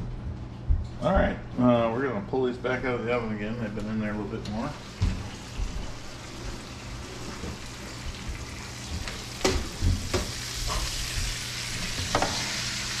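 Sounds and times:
chicken wings sizzling in fat: 5.3 - 13.0.

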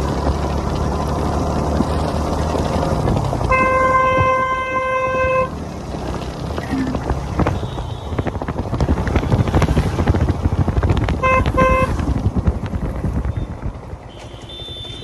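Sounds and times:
wind buffeting microphone: 0.0 - 14.1
motorcycle engine rumble: 0.0 - 15.0
vehicle horn beeps: 7.5 - 8.3, 14.1 - 15.0.

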